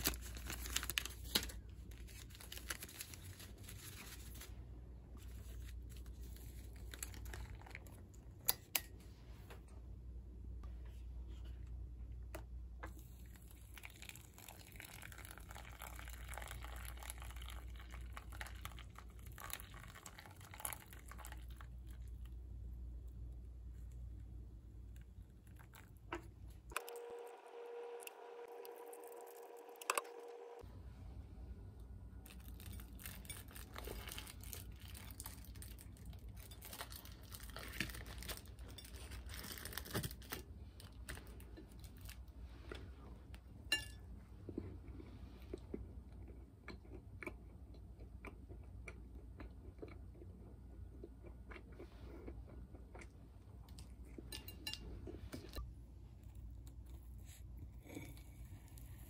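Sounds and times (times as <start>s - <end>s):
bread crust crackling: 0.0s - 4.6s, 32.2s - 42.2s
low room hum: 0.0s - 59.0s.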